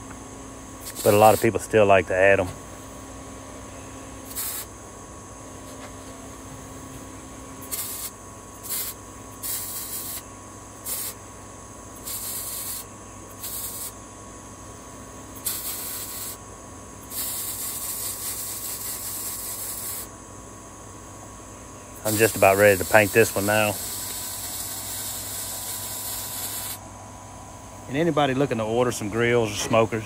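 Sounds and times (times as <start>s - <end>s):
welding arc hissing and crackling: 0.8s - 2.4s, 4.2s - 4.8s, 7.6s - 11.2s, 12.0s - 14.0s, 15.3s - 16.4s, 17.0s - 20.1s, 22.0s - 26.8s.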